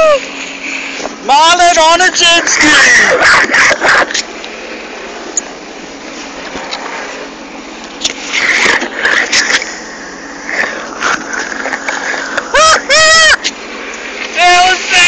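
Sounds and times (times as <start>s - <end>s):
jet ski engine running: 0.0s - 15.0s
wind and water rushing: 0.0s - 15.0s.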